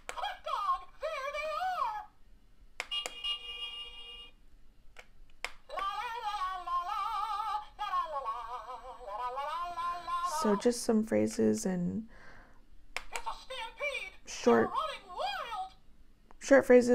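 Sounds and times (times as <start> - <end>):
high warbling cartoon voice: 0.1 - 2.2, 5.7 - 10.6, 13.1 - 15.8
sharp clicks: 4.9 - 5.6, 12.9 - 13.3.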